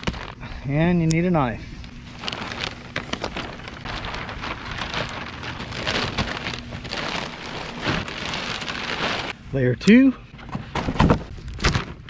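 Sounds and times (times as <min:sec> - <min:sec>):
plastic wrap crinkling: 0:00.0 - 0:09.4.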